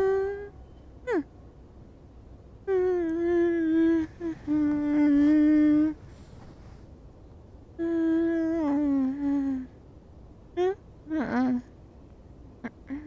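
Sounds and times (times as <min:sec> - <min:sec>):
woman humming: 0:00.0 - 0:01.3, 0:02.6 - 0:06.0, 0:07.8 - 0:09.8, 0:10.6 - 0:11.7, 0:12.6 - 0:13.0.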